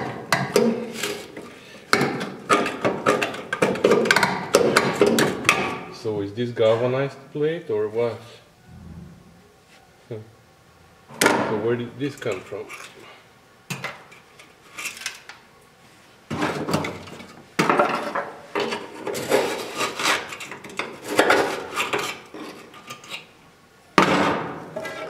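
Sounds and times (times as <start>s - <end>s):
sharp metallic hit: 8.6s - 9.6s.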